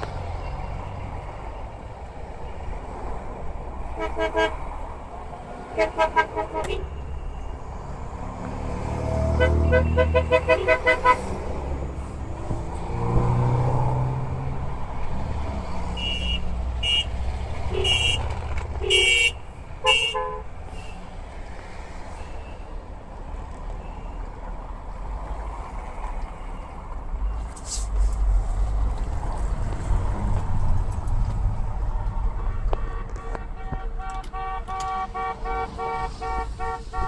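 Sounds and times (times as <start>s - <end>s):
old cars driving past: 11.2s - 16.0s.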